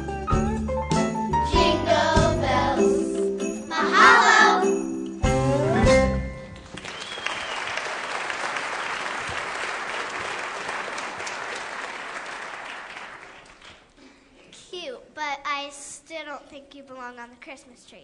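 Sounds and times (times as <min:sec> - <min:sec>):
audience applauding: 0:06.5 - 0:13.9.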